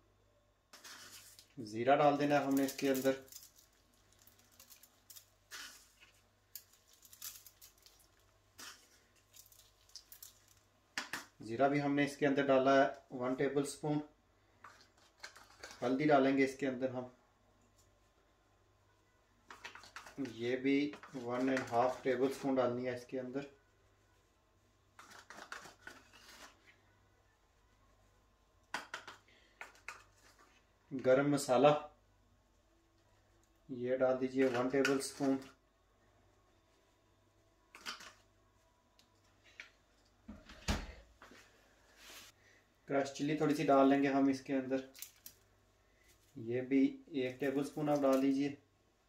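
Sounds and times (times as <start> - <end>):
spice sprinkled in metal tray: 0.7 - 11.2
seeds pattering on food: 2.2 - 10.7.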